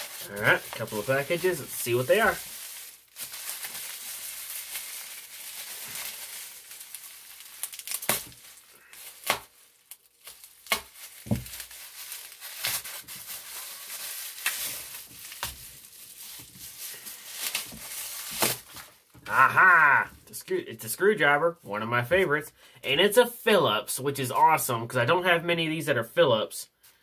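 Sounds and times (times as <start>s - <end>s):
bubble wrap snapping: 0.0s - 19.1s
bubble wrap crinkling: 0.0s - 20.0s.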